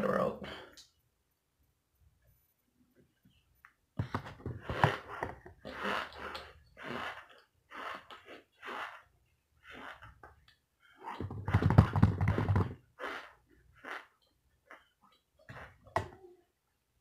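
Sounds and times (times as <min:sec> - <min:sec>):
person chewing and crunching: 0:12.3 - 0:15.7.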